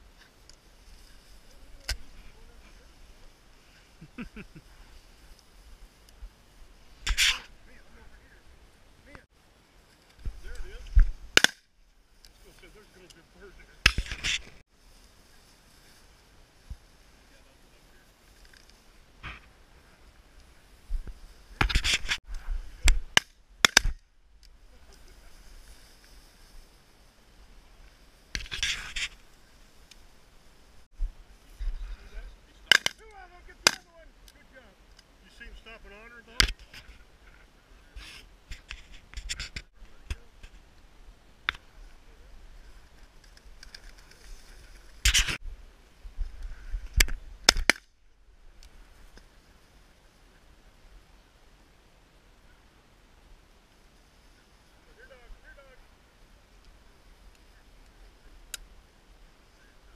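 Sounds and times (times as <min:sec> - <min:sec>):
footsteps in frosted dry grass: 0:00.0 - 0:08.9, 0:14.0 - 0:23.1, 0:24.6 - 0:32.4, 0:36.6 - 0:47.4.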